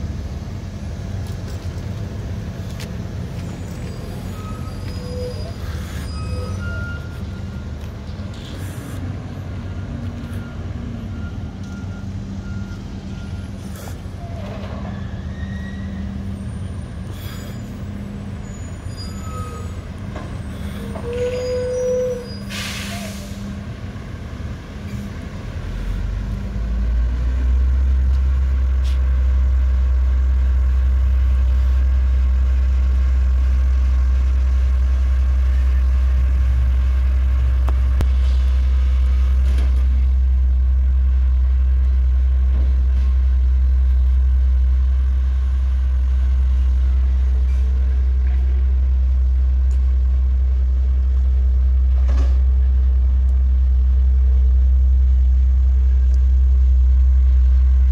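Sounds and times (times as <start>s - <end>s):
garbage truck engine drone: 0.0s - 57.9s
air brake hiss: 22.3s - 23.5s.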